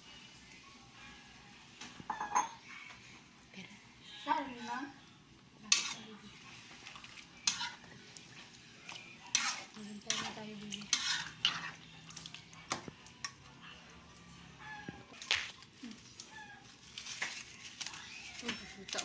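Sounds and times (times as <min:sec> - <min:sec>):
metal spatula scraping wok: 0:05.6 - 0:12.5.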